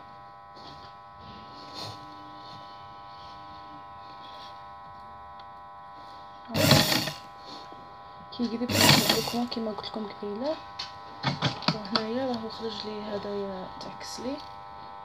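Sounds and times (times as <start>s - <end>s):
sewing machine motor humming: 6.5s - 7.4s, 8.4s - 14.4s
loud burst of noise: 6.6s - 7.3s, 8.7s - 9.5s.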